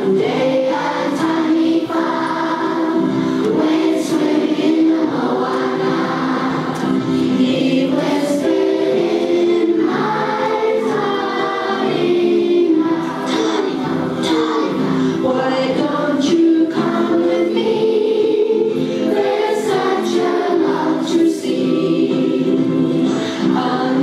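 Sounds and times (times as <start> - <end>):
children singing together: 0.0 - 24.0.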